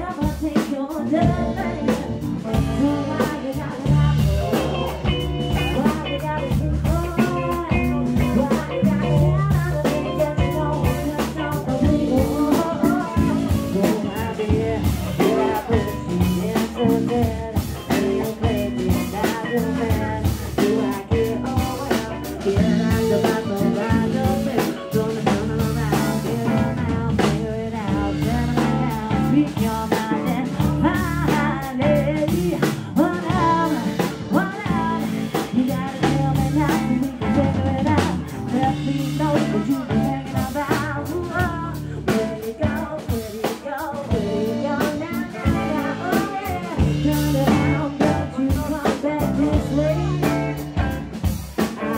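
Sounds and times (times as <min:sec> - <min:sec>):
live band playing: 0:00.0 - 0:51.9
woman singing: 0:00.0 - 0:51.9.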